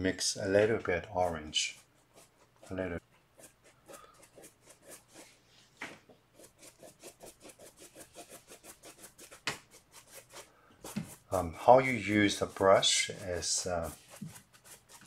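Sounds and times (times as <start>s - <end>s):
paintbrush scrubbing on canvas: 0.4s - 15.0s
sharp brush tap: 9.2s - 9.8s, 10.8s - 11.2s.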